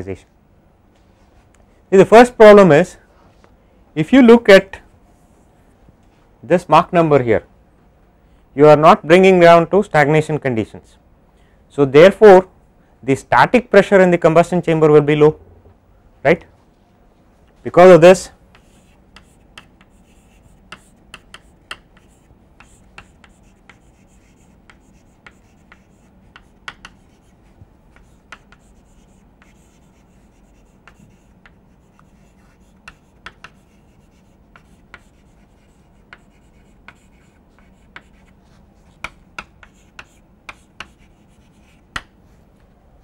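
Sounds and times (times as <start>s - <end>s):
faint steady hum: 0.0s - 43.0s
chalk tapping and scratching on board: 18.5s - 42.2s.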